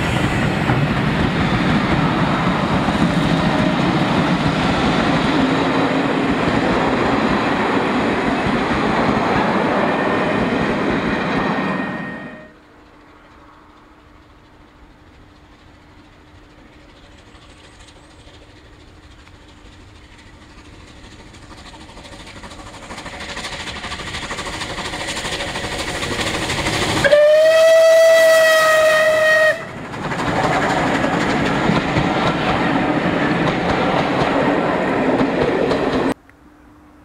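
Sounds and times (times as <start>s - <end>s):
steam locomotive running: 0.0s - 36.2s
steam whistle: 9.6s - 12.6s, 27.0s - 29.8s.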